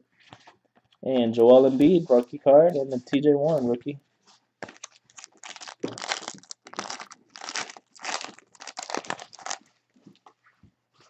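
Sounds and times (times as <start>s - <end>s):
card packaging crinkling: 4.6s - 9.7s.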